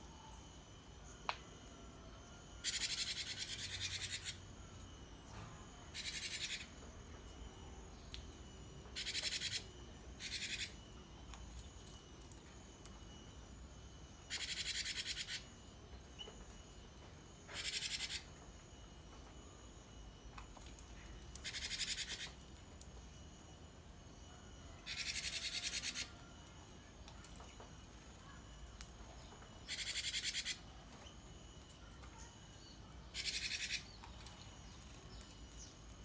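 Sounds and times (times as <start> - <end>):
bird chattering trills: 2.6 - 4.4, 5.9 - 6.7, 9.0 - 10.8, 14.3 - 15.5, 17.6 - 18.2, 21.4 - 22.4, 24.8 - 26.1, 29.7 - 30.6, 33.1 - 34.0.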